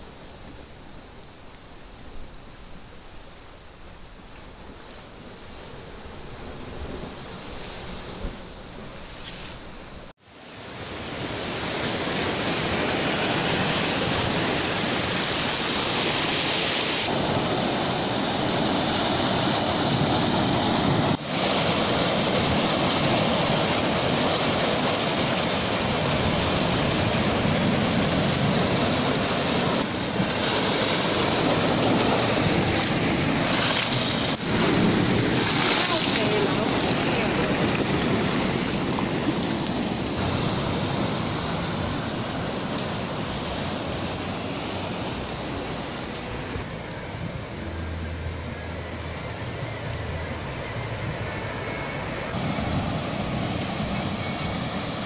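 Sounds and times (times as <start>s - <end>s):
surf breaking over rocks: 11.1s - 46.7s.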